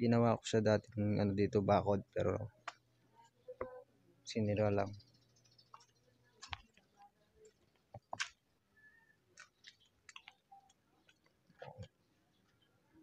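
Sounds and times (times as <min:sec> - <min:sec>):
faint clicks and taps: 0:05.7 - 0:08.4, 0:09.3 - 0:12.7.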